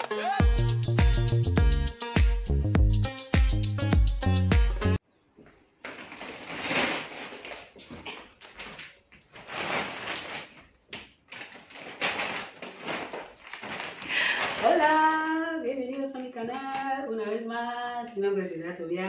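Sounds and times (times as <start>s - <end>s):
woman vocalising sing-song: 14.6s - 19.0s.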